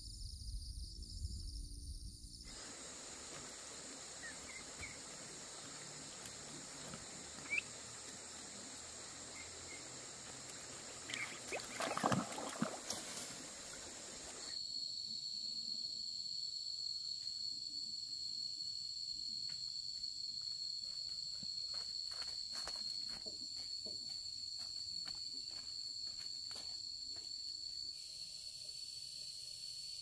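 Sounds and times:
high-pitched insect drone: 0.0s - 19.6s
insect trill: 0.0s - 30.0s
bird chirps: 4.2s - 5.1s, 7.4s - 7.8s, 11.0s - 11.8s.

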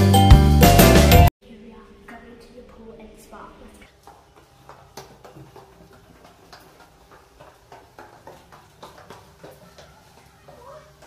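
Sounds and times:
footsteps going up stairs: 3.9s - 11.0s.

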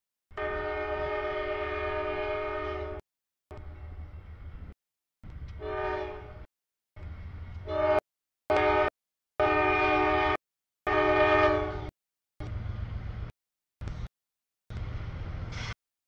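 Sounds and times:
train air horn chord: 0.4s - 3.7s, 5.6s - 6.4s, 7.7s - 11.9s
locomotive engine rumble: 11.6s - 14.1s, 14.7s - 15.8s.

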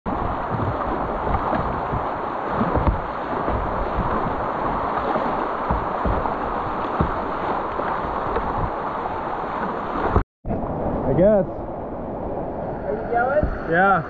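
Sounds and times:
low thumps: 0.1s - 8.9s
creek rapids rushing: 0.1s - 10.2s.

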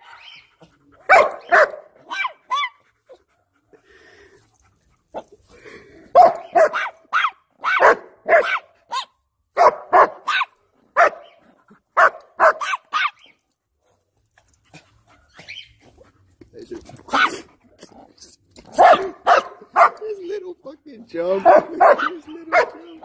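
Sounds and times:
dog barking: 0.0s - 0.4s, 1.1s - 2.7s, 6.1s - 11.4s, 12.0s - 13.2s, 17.1s - 17.4s, 18.7s - 20.0s, 21.4s - 23.0s.

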